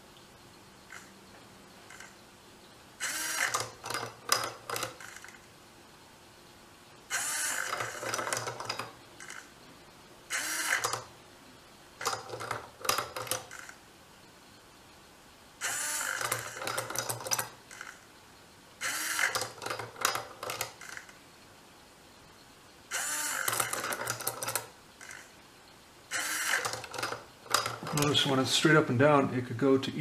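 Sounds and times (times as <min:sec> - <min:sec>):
servo whining: 0:03.0 - 0:05.4, 0:07.1 - 0:09.6, 0:10.3 - 0:11.1, 0:15.6 - 0:18.1, 0:18.8 - 0:21.2, 0:22.9 - 0:25.4, 0:26.1 - 0:28.9.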